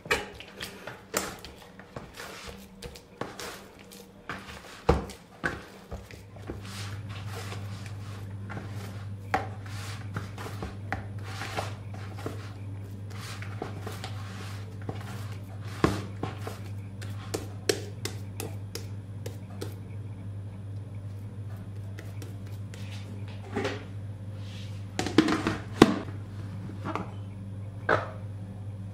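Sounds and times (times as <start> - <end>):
hands squelching wet dough: 0.3 - 19.8
dough slaps: 14.8 - 19.8.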